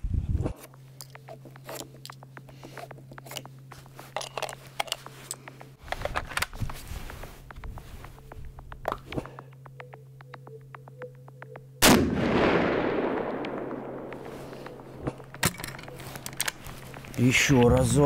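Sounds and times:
steady low hum: 0.0 - 18.0
clothing rustling: 0.6 - 8.8
cartridges and magazine clicking: 4.1 - 6.8, 13.4 - 17.2.

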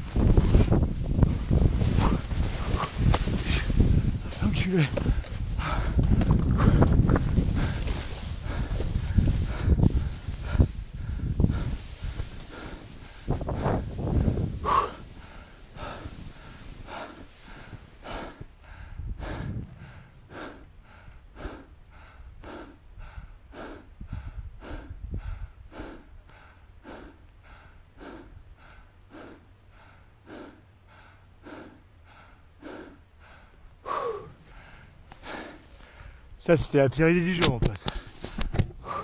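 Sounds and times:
low rumbles against microphone: 0.0 - 25.6
person panting hard: 1.3 - 36.3, 37.9 - 39.0.

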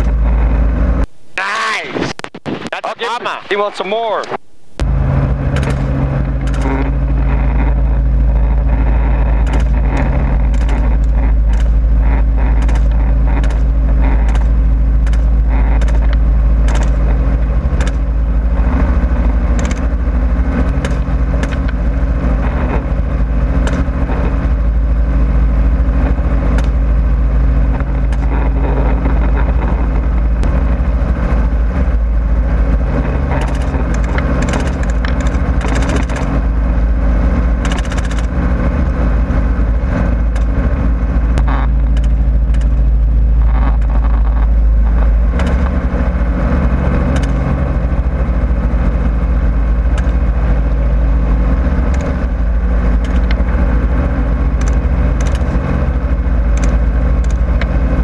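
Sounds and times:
helicopter engine and rotors: 0.0 - 58.0.

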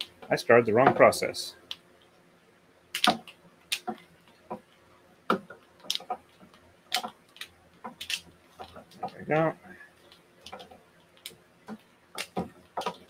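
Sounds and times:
wooden bobbins clicking: 2.9 - 13.0.

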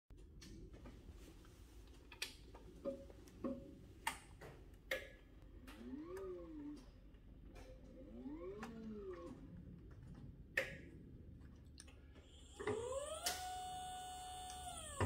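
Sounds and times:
electric motor whining: 12.4 - 15.0.

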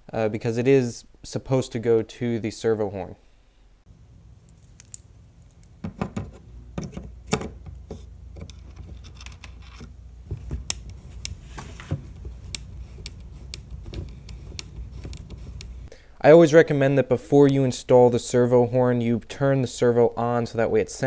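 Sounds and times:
light rubbing: 5.6 - 15.9.

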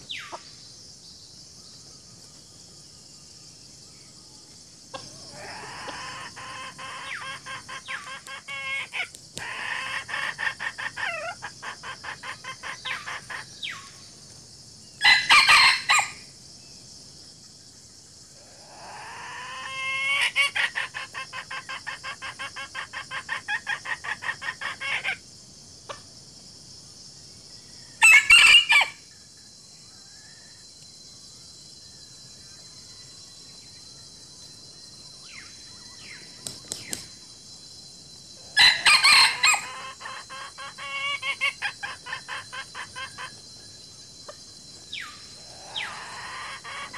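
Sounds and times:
high insect drone: 0.0 - 46.9
chickens clucking: 4.9 - 13.6, 38.6 - 43.4, 45.6 - 46.9
rooster crowing: 15.0 - 16.2, 28.0 - 29.0, 38.6 - 41.3.

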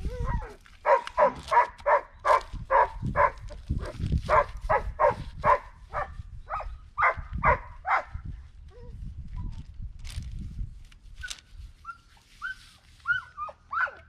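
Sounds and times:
dog barking: 0.3 - 3.4, 4.3 - 8.1, 13.7 - 14.0.

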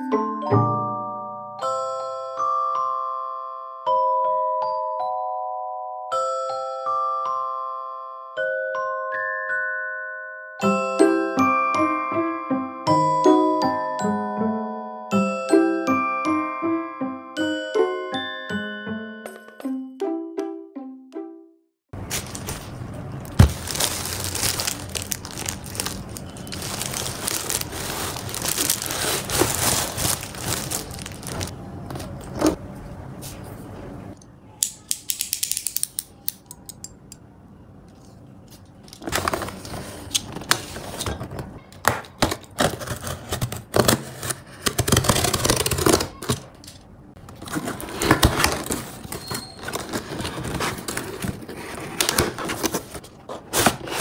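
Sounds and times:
bag and cardboard box rustling: 22.0 - 32.6, 39.0 - 41.5, 47.4 - 54.0
packaging scraped and pulled apart: 23.4 - 31.5, 42.4 - 46.4, 47.4 - 54.0.

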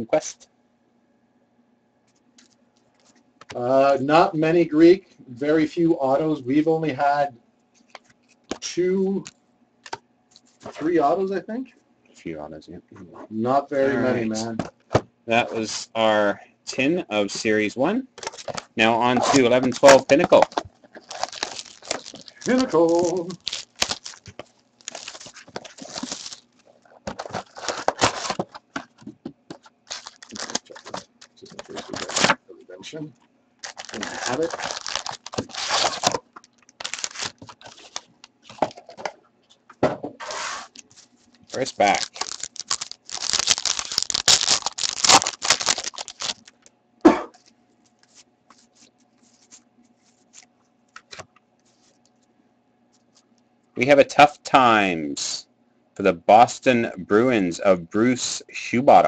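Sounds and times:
plastic shrink-wrap crinkling: 18.2 - 28.8, 29.5 - 32.4, 33.6 - 38.6, 40.8 - 46.7
cards being handled: 18.2 - 32.4, 33.7 - 39.0, 47.4 - 52.1.

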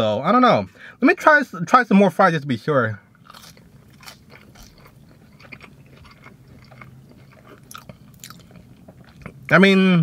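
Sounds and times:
person chewing fries: 3.1 - 9.8.

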